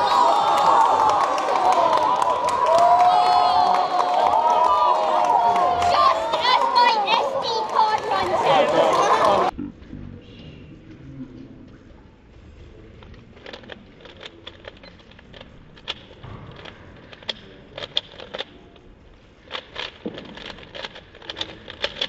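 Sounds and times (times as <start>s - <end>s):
plastic puzzle cube clicking: 13.0s - 18.6s, 19.4s - 22.0s.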